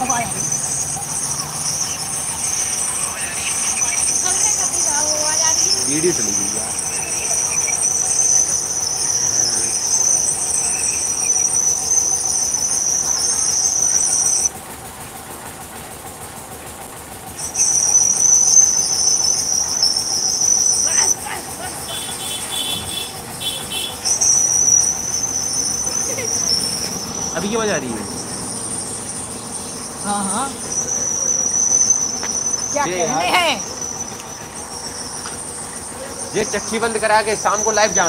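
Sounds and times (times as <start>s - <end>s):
insects trilling: 0.0s - 38.0s.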